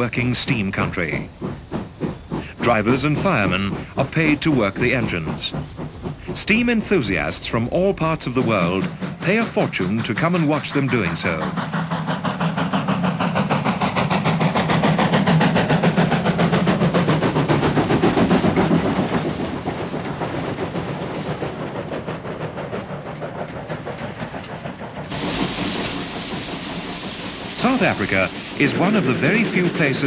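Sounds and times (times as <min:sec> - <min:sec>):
steady steam hiss: 0:00.0 - 0:30.0
steam locomotive chuffing: 0:00.0 - 0:30.0.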